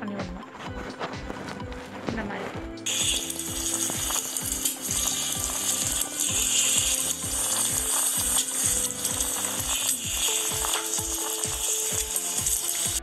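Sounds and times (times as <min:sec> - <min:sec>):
background music with steady beat: 0:00.0 - 0:13.0
wooden masher mashing in a pan: 0:02.9 - 0:13.0.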